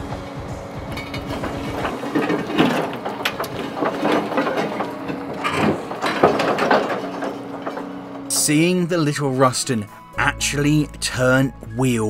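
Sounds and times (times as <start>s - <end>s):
steady engine drone: 0.0s - 8.7s
rusted wheels creaking and clicking: 0.3s - 12.0s.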